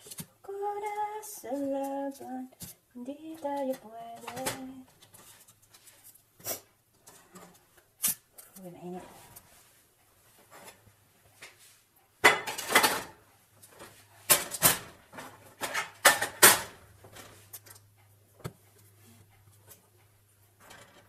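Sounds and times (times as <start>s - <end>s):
low steady hum: 0.0s - 21.0s
metal tin clattering on stovetop: 12.2s - 13.2s, 14.3s - 17.7s.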